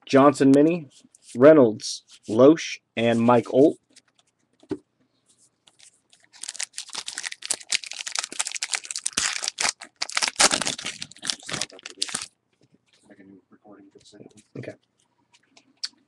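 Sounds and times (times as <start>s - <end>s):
foil wrapper crinkling: 5.8s - 12.3s.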